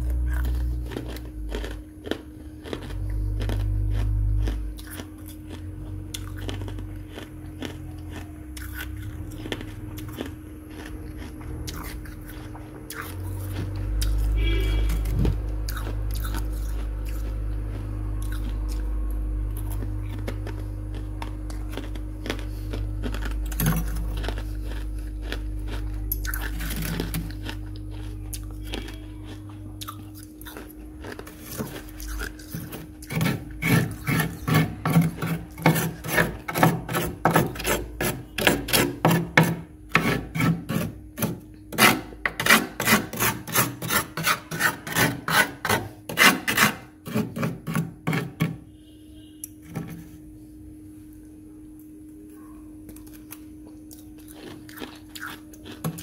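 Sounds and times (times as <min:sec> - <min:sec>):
metal spoon scraping frost: 0:13.1 - 0:15.3, 0:25.9 - 0:27.6, 0:31.1 - 0:50.2.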